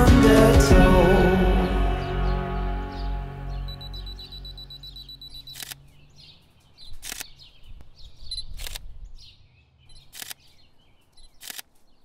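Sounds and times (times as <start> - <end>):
birds chirping faintly: 2.0 - 12.0
camera shutter clicks: 5.2 - 6.0, 6.9 - 7.4, 8.3 - 8.9, 9.9 - 10.5, 11.2 - 11.8.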